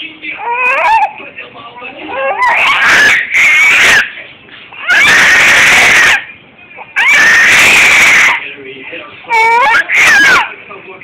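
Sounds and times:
baby shrieking: 0.4 - 1.2, 2.1 - 4.2, 4.8 - 6.3, 6.9 - 8.4, 9.3 - 10.5.

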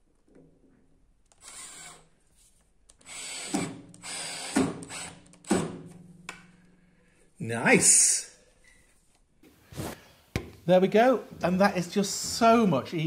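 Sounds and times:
cordless drill whirring: 1.3 - 2.1, 3.0 - 5.2.

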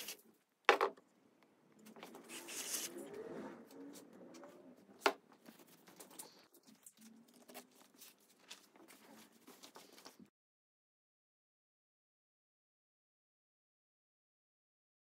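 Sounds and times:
paper rustling: 2.0 - 3.0, 5.0 - 10.3.

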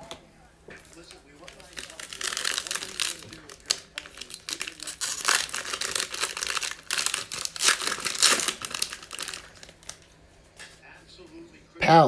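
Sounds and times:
foil wrapper tearing and crinkling: 1.4 - 10.0.

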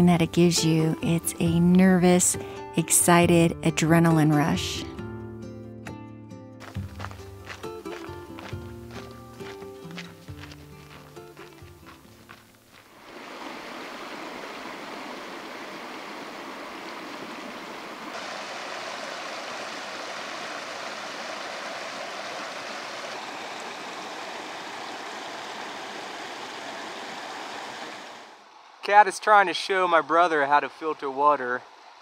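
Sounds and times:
water rushing over rocks: 13.0 - 28.4.

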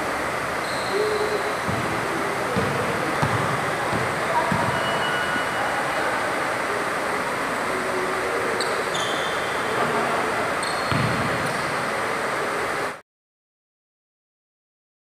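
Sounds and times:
gym hall hiss: 0.0 - 13.0
short high squeaks: 0.6 - 1.7, 4.7 - 5.8, 8.6 - 9.6, 10.6 - 11.7
basketball bouncing on hardwood: 1.7 - 1.9, 2.6 - 4.9, 10.9 - 11.2.

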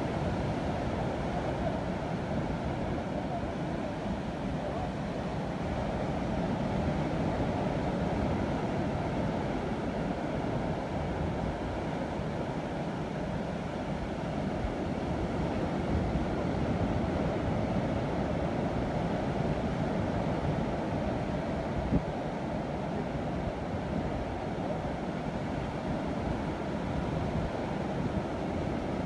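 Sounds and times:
wind rumbling on microphone: 14.0 - 29.0.

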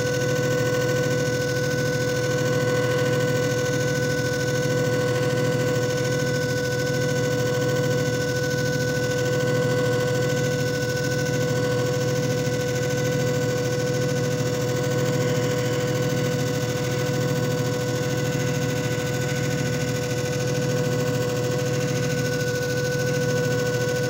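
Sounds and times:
machine motor humming and whining: 0.0 - 24.0.

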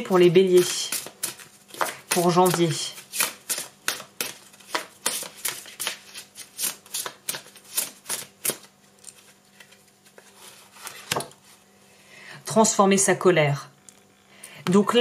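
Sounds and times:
cards being shuffled: 0.1 - 11.4.

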